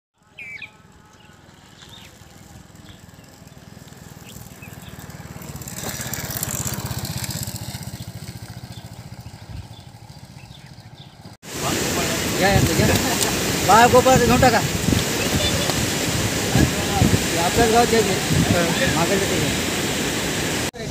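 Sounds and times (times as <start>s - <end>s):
birds chirping: 0.2s - 16.0s
small engine running: 0.9s - 11.4s.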